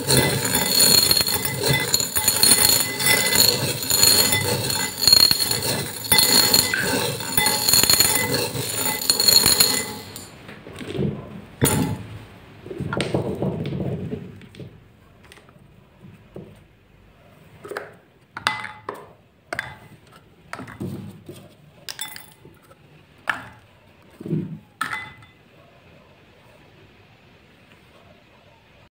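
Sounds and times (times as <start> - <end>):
beads clinking in glass bowl: 0.0 - 10.4, 11.6 - 12.1.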